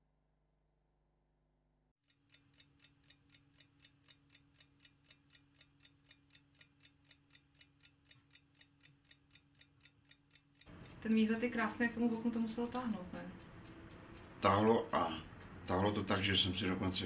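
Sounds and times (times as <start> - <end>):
faint even ticking: 2.0 - 17.0
steady low hum: 10.6 - 17.0.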